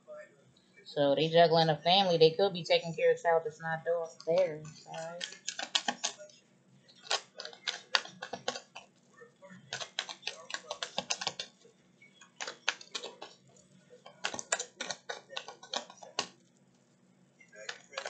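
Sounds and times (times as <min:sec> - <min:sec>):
cards shuffled by hand: 0:04.2 - 0:06.2, 0:06.9 - 0:11.6, 0:12.2 - 0:17.0, 0:17.6 - 0:18.0.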